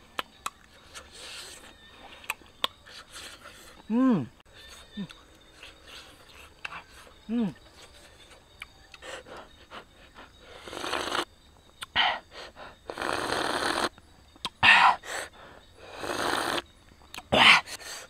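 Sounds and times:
person slurping broth: 0:10.6 - 0:11.2.

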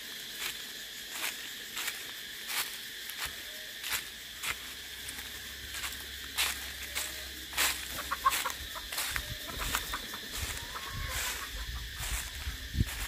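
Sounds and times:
cicadas droning: 0:00.0 - 0:13.0
chickens clucking: 0:05.2 - 0:13.0.

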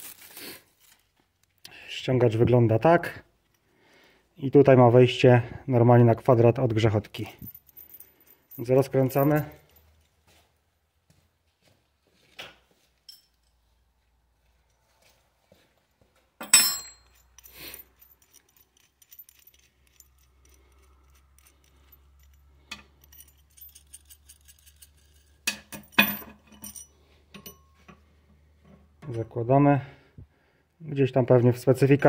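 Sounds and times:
metal tool clinking and clanking: 0:07.1 - 0:10.1, 0:13.0 - 0:13.7, 0:16.4 - 0:29.4.

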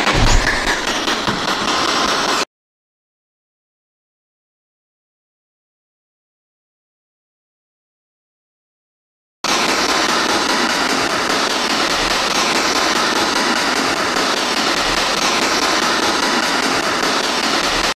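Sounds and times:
radio static hiss: 0:00.0 - 0:02.4, 0:09.5 - 0:18.0.

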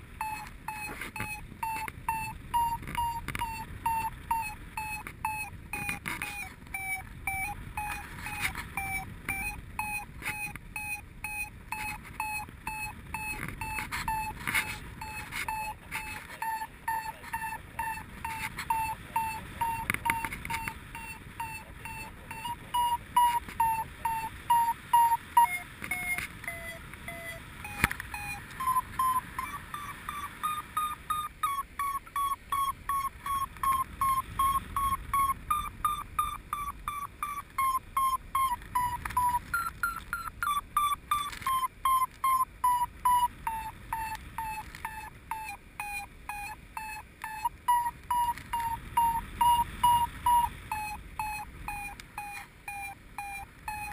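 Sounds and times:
variometer beeping: 0:00.0 - 0:53.9.

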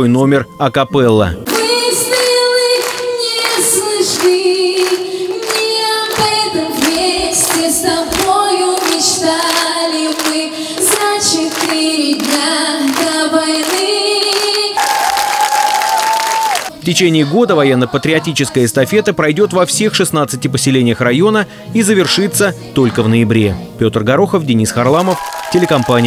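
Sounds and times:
girl singing into a microphone: 0:01.5 - 0:14.8
audience clapping in time: 0:01.5 - 0:16.7, 0:24.7 - 0:26.0.

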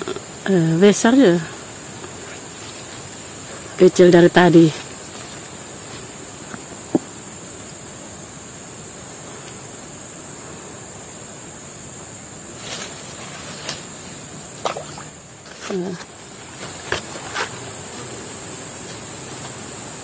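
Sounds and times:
branches and leaves rustling: 0:00.0 - 0:20.0
even hiss: 0:00.0 - 0:20.0
insects droning: 0:00.0 - 0:20.0.

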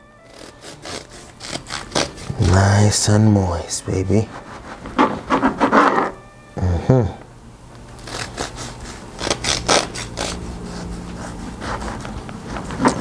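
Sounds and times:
bread knife sawing through loaf: 0:00.2 - 0:03.0, 0:03.8 - 0:06.2, 0:08.0 - 0:13.0.

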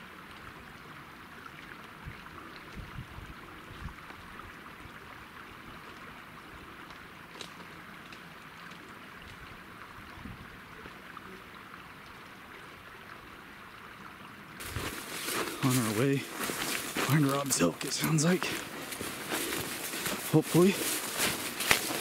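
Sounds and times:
mountain stream rushing: 0:03.4 - 0:22.0.

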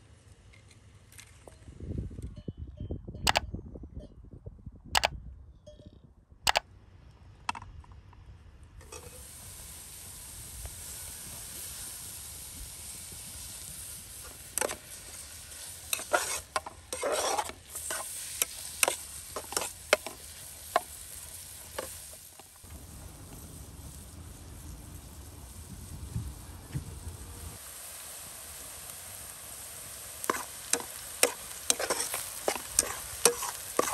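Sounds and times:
onions sizzling in a pot: 0:08.8 - 0:33.9
ladle scraping and knocking pot: 0:15.9 - 0:20.9, 0:30.3 - 0:33.9.

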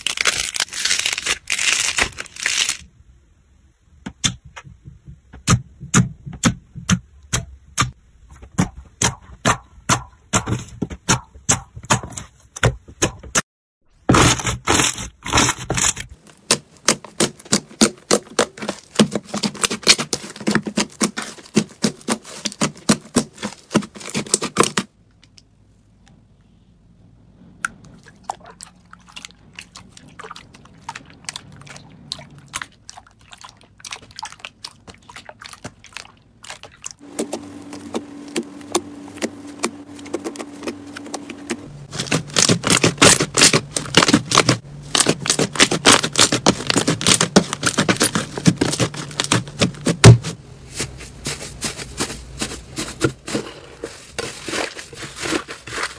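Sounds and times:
slime crackling and popping: 0:00.0 - 0:02.8, 0:40.3 - 0:50.2
steady low hum: 0:37.0 - 0:54.4.

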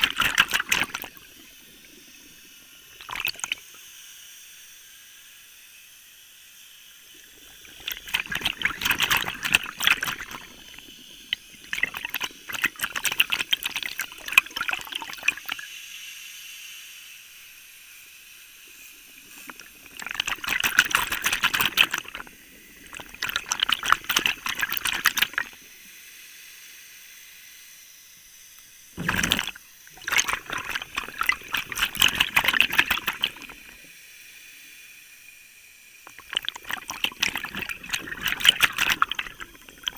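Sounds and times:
underwater air bubbling: 0:00.0 - 0:03.8, 0:07.1 - 0:15.6, 0:18.8 - 0:25.7, 0:29.0 - 0:33.9, 0:36.1 - 0:39.9.

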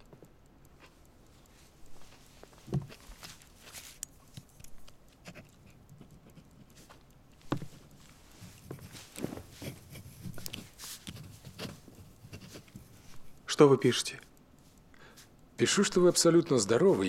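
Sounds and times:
pen scratching on paper: 0:05.2 - 0:06.9, 0:08.4 - 0:13.2.

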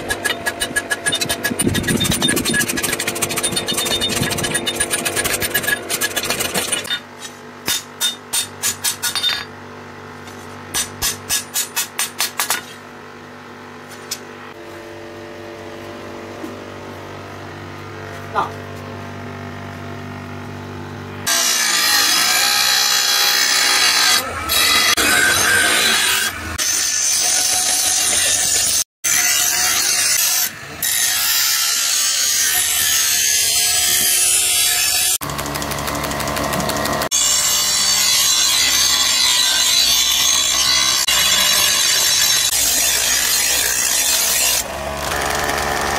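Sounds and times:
power tool grinding metal: 0:00.0 - 0:07.0, 0:21.2 - 0:45.9.

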